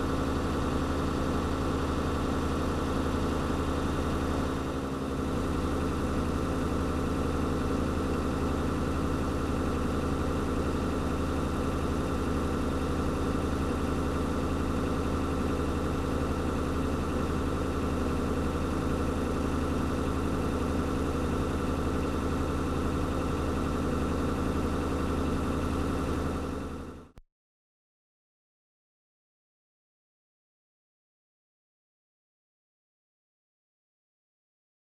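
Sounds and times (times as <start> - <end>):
truck engine running steadily: 0.0 - 27.2.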